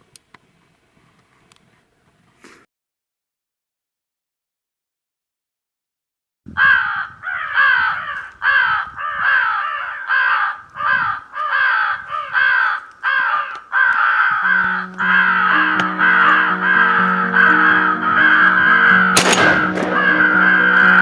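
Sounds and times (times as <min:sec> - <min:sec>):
crows cawing: 0:06.5 - 0:21.0
background music: 0:14.4 - 0:21.0.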